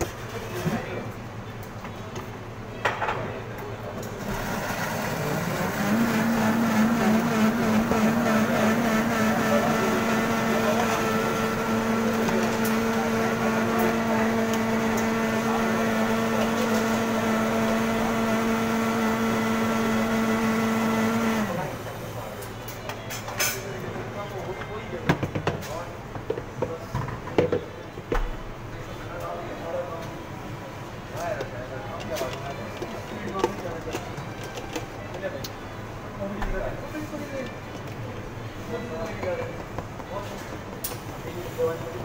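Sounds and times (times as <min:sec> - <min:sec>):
blender motor whining: 0:04.3 - 0:21.8.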